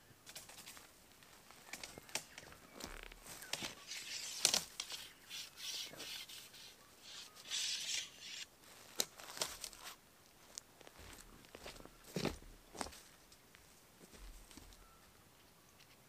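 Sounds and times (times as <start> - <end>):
tent poles clicking: 1.5 - 10.0.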